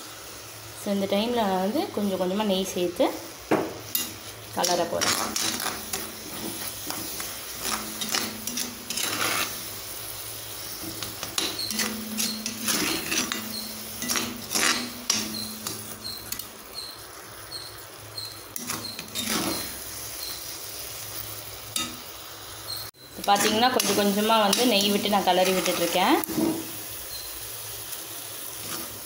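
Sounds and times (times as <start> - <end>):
metal spatula scraping iron pan: 3.9 - 9.9, 10.6 - 20.5, 23.2 - 26.8, 28.6 - 29.0.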